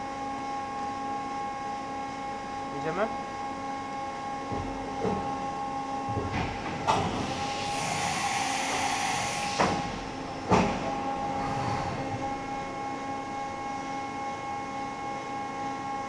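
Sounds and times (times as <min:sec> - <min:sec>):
machine hum and whine: 0:00.0 - 0:16.0
hiss of air: 0:07.1 - 0:10.0.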